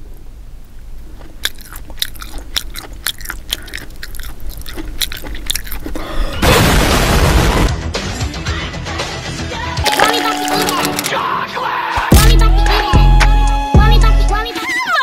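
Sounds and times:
crunchy snack chewing: 1.0 - 6.4, 9.9 - 11.1.

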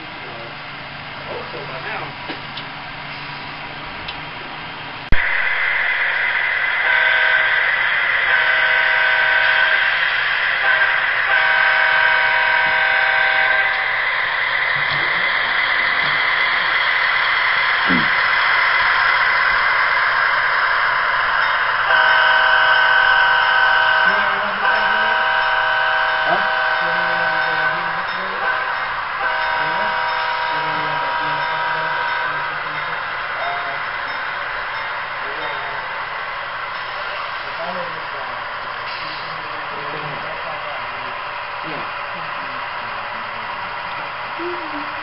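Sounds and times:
model locomotive running sound: 5.2 - 45.0
locomotive air horn: 6.8 - 10.0, 10.6 - 14.0, 21.9 - 32.5.

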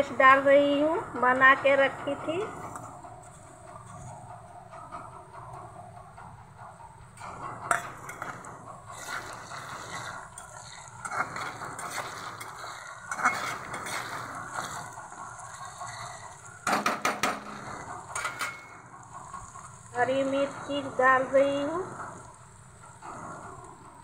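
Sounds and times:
metal spoon scraping a pan: 7.6 - 22.4
onions sizzling in hot oil: 8.9 - 22.9.

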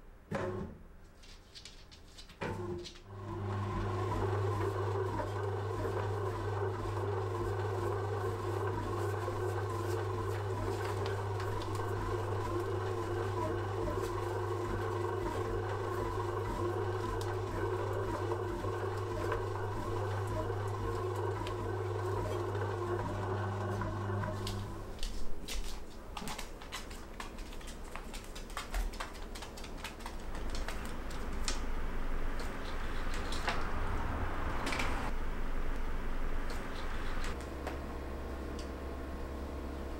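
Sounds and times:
bread machine motor hum: 3.1 - 25.2.

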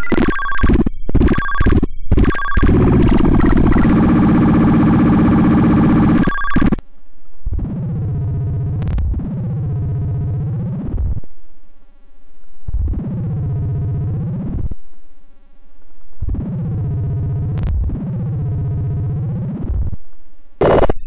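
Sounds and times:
buzzing synthetic tone: 0.0 - 6.8, 20.6 - 21.0.

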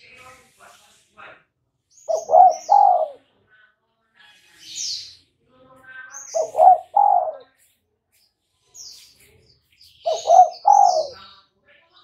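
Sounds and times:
high bird chirps: 1.9 - 3.2, 6.1 - 7.5, 8.1 - 11.4
dove cooing: 2.1 - 3.2, 6.4 - 7.5, 10.1 - 11.2.

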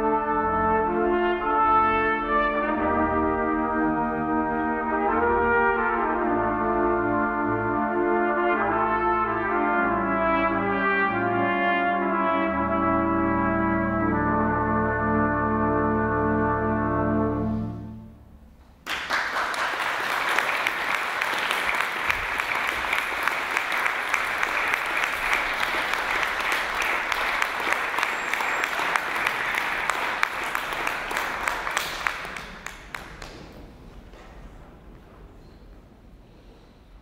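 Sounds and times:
trumpets and organ chord: 0.0 - 18.4
audience applause: 18.8 - 33.8.

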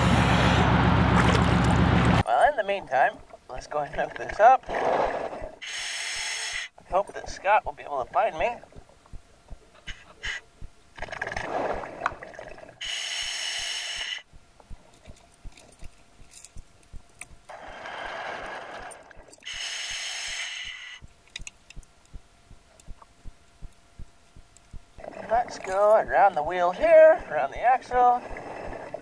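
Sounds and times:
diver breathing through regulator: 4.7 - 6.8, 9.8 - 10.5, 12.8 - 14.3, 17.5 - 21.1.

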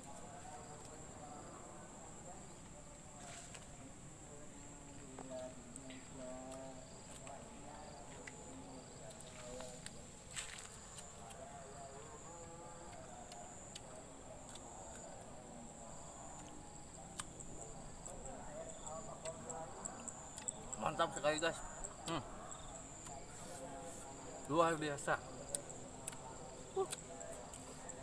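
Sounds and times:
insects chirring: 0.0 - 28.0
crunch of biting fruit: 12.9 - 15.4, 16.3 - 17.4, 25.4 - 28.0.

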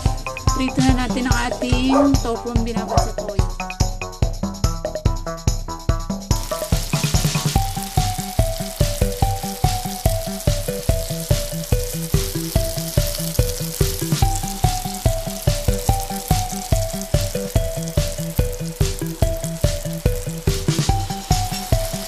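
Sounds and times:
background music with beat: 0.0 - 22.0
food frying in hot oil: 6.3 - 22.0.

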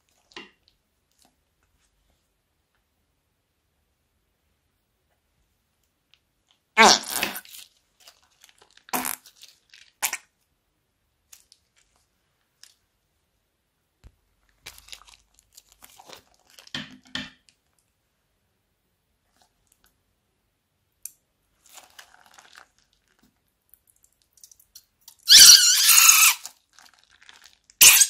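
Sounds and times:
plastic bags crinkling: 7.4 - 10.0, 14.5 - 16.8, 21.6 - 23.2, 26.4 - 27.8.

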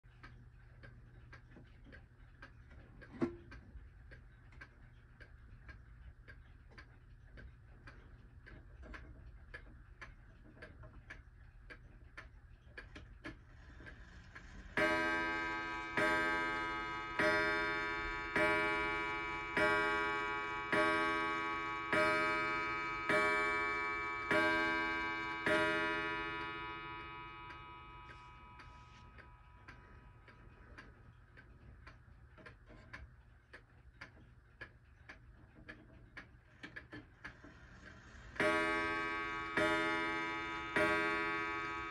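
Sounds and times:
pendulum clock ticking: 0.1 - 41.9
clock striking ringing strokes: 14.7 - 30.3, 38.3 - 41.9.

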